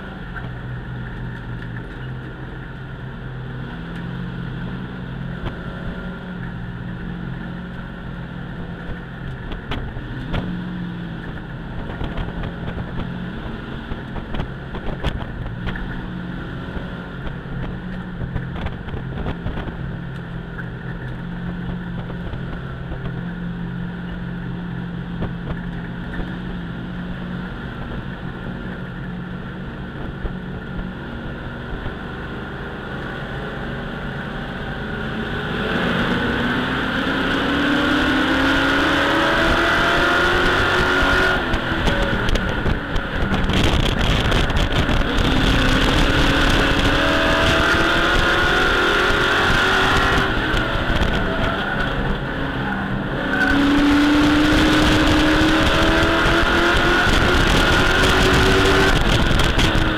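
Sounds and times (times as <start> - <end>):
truck engine racing: 0.0 - 59.9.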